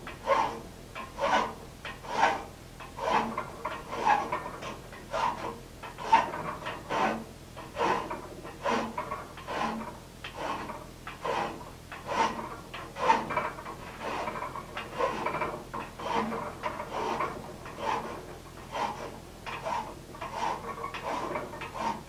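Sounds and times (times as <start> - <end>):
hand file rasping on steel: 0.2 - 22.0.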